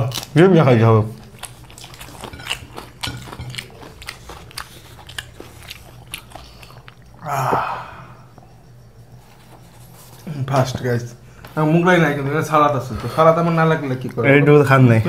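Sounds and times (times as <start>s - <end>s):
chewing and biting crunches: 0.0s - 7.2s.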